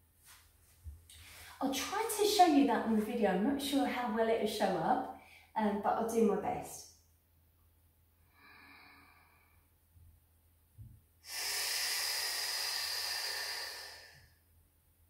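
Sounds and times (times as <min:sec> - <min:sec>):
woman breathing in and out: 0:01.1 - 0:01.6, 0:05.1 - 0:05.6, 0:08.2 - 0:09.9, 0:11.2 - 0:14.4.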